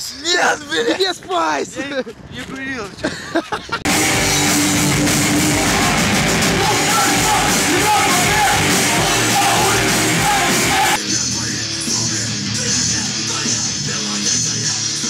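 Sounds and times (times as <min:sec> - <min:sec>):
bass: 0:03.8 - 0:15.0
distorted electric guitars: 0:03.8 - 0:15.0
drums: 0:03.8 - 0:15.0
shouted vocals: 0:04.0 - 0:11.0.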